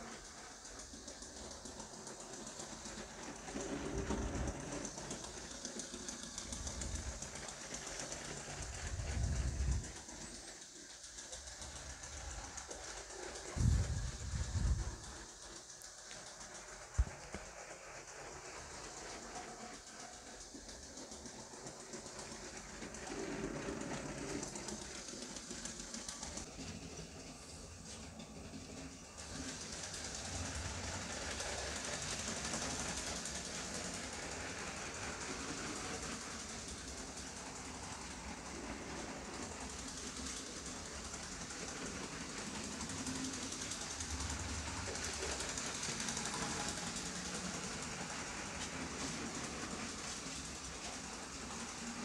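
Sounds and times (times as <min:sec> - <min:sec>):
toy train rumbling on track: 0:00.0 - 0:52.0.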